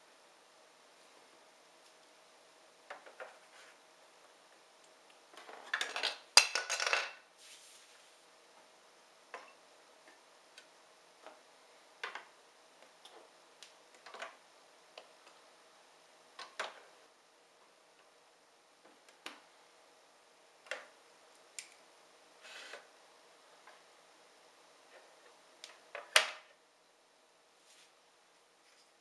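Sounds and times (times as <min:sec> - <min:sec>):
plastic toy pieces clattering: 0:05.5 - 0:07.2.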